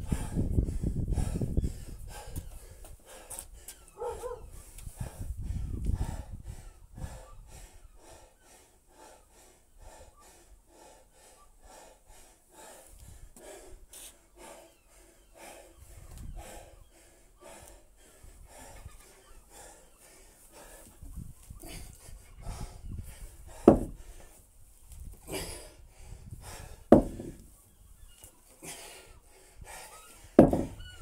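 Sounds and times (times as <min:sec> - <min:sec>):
man breathing hard and fast: 0:00.0 - 0:31.0
low thumps: 0:23.6 - 0:24.0, 0:26.9 - 0:27.4, 0:30.4 - 0:30.8.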